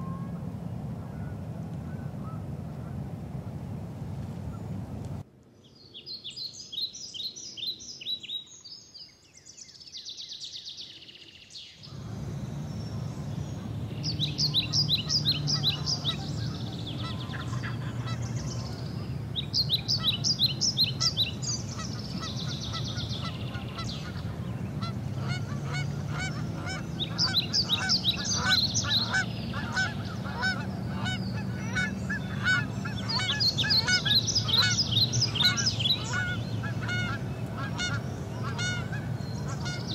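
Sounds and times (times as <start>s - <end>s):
birds singing and calling: 5.7s - 39.9s
low rumble: 11.8s - 39.8s.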